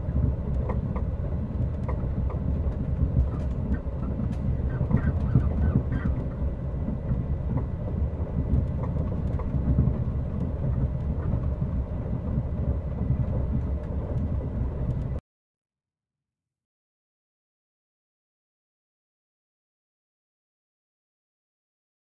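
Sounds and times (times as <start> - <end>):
faint rail clicks: 0.0 - 15.2
train rumbling on rails: 0.0 - 15.2.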